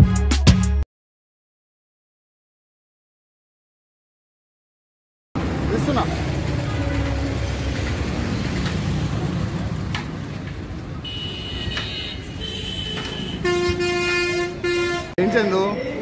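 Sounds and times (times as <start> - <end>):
road traffic rumble: 5.4 - 16.0
vehicle horn honking: 6.5 - 7.4, 11.0 - 15.2.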